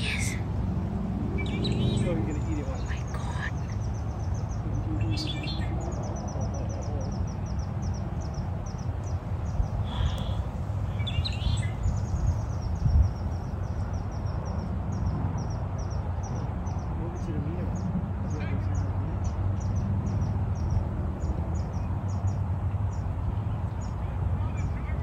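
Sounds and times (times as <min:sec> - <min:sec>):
sharp bird calls: 0:01.3 - 0:23.1
small bird chirping: 0:01.4 - 0:16.9.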